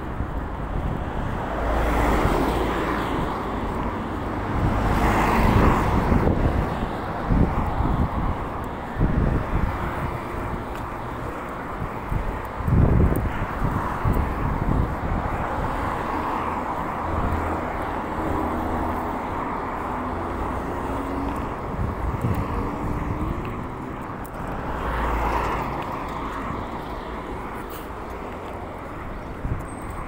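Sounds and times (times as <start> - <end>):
traffic rumble: 0.0 - 30.0
vehicle passing: 14.6 - 30.0.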